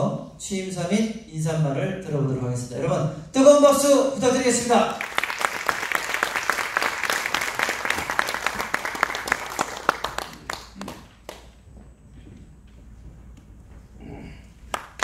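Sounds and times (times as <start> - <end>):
audience applauding: 4.9 - 11.6, 14.7 - 15.0.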